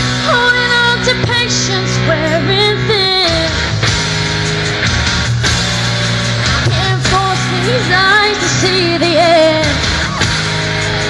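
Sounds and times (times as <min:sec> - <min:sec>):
amplified rock music: 0:00.0 - 0:11.0
woman singing: 0:00.2 - 0:03.6, 0:06.7 - 0:09.9.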